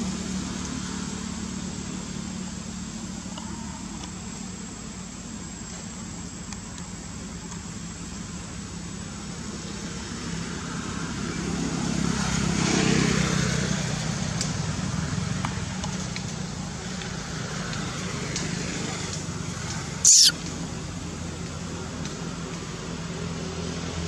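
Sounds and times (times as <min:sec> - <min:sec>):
vehicle engine passing by: 0:09.8 - 0:20.5.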